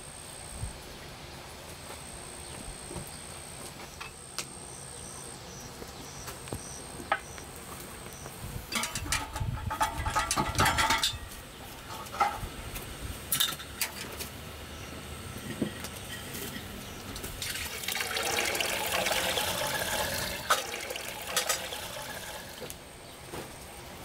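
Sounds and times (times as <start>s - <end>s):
metal clattering and clinks: 8.7s - 11.3s.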